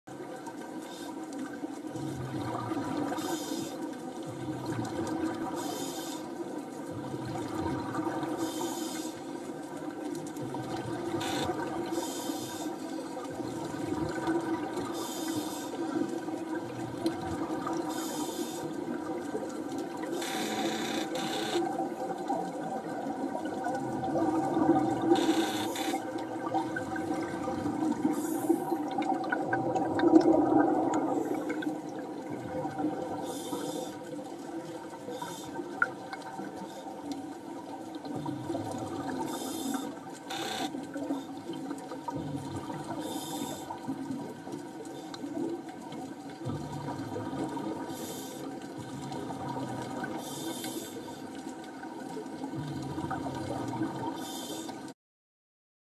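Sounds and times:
underwater bubbles rushing up: 1.8s - 3.4s, 4.0s - 5.6s, 6.9s - 8.4s, 9.7s - 12.0s, 13.0s - 15.1s, 15.8s - 18.1s, 21.0s - 33.5s, 37.2s - 39.4s, 40.0s - 50.4s, 51.4s - 54.2s.

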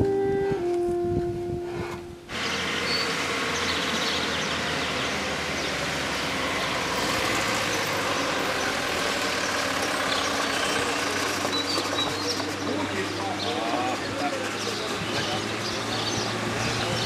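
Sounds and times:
minibus engine running: 2.0s - 17.0s
tyre noise on road: 2.2s - 17.0s.

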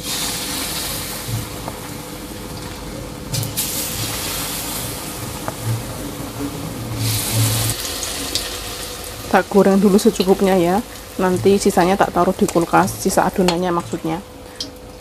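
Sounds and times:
batter sizzling in hot oil: 0.0s - 15.0s.

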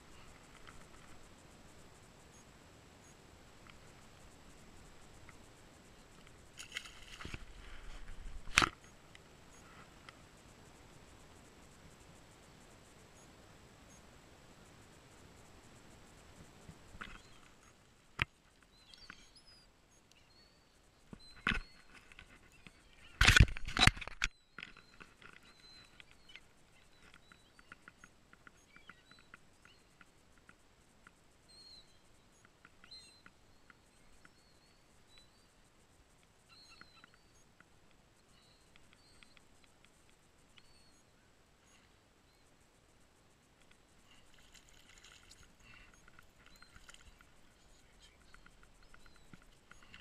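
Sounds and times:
faint bird chirps: 0.0s - 14.1s, 14.7s - 50.0s
small clicks: 0.2s - 1.2s, 6.1s - 10.2s, 16.9s - 20.4s, 21.1s - 31.2s, 36.2s - 42.6s, 43.4s - 50.0s.

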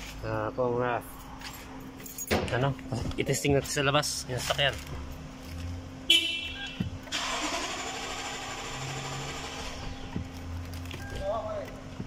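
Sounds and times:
car engine starting and running: 3.8s - 12.0s.

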